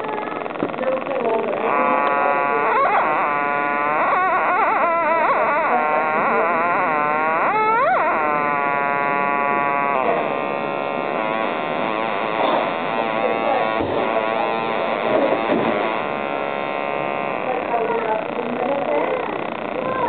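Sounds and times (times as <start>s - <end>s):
buzzy synthesizer tone: 0.0s - 20.0s.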